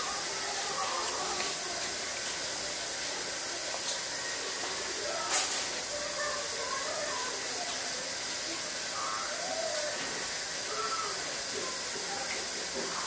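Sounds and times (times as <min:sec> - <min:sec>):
faint indistinct murmuring: 0:00.0 - 0:13.0.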